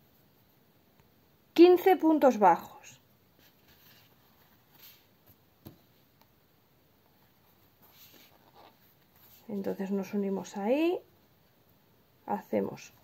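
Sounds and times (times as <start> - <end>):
rustling of yarn: 3.3 - 6.2, 7.0 - 11.0.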